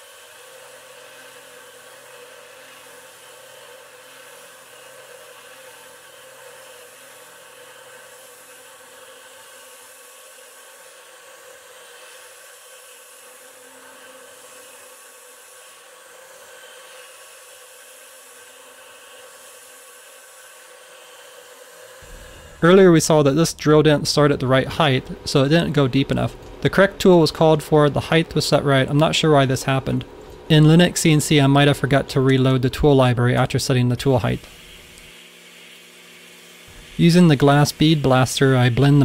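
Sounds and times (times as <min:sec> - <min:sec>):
milling machine whir and hiss: 0:00.0 - 0:25.6, 0:33.7 - 0:39.0
low hum: 0:22.0 - 0:28.4.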